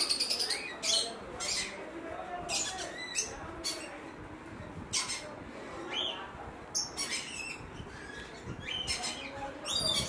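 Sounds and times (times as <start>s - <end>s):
parrot chicks calling: 4.9s - 10.0s.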